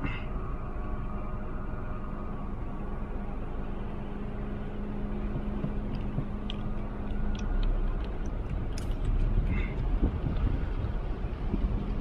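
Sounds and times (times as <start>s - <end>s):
low hum: 0.0s - 12.0s
low rumble: 0.0s - 12.0s.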